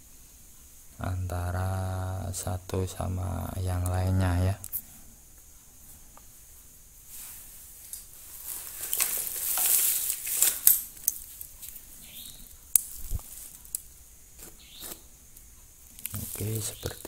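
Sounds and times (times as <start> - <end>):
wire handling rustle: 7.1 - 17.0.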